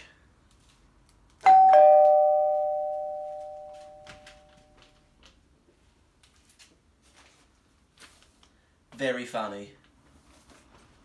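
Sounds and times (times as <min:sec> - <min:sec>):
two-note doorbell chime: 0:01.4 - 0:04.7.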